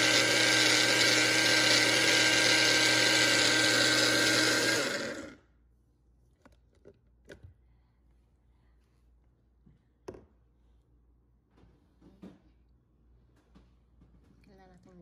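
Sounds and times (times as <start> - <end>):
blender running: 0.0 - 5.4.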